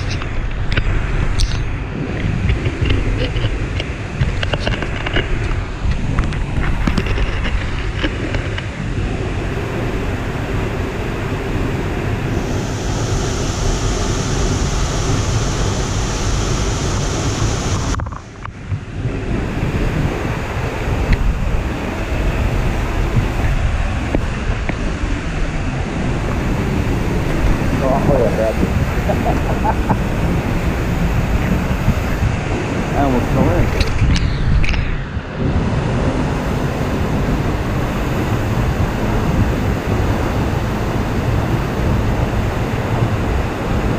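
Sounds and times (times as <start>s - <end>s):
wind buffeting microphone: 0.0s - 43.9s
waterfall rushing: 8.7s - 43.9s.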